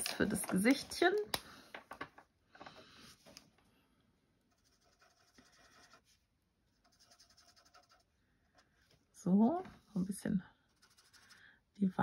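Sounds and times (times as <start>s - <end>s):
felt-tip marker scratching on card: 6.8s - 8.1s, 10.7s - 11.4s.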